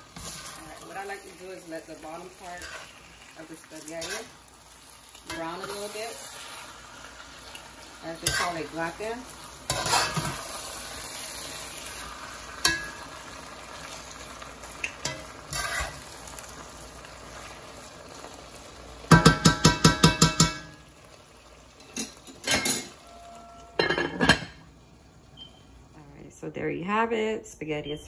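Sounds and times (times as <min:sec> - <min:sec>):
spaghetti sizzling in a pot: 0:00.0 - 0:25.9
spoon scraping pot: 0:09.7 - 0:10.4, 0:15.0 - 0:16.0.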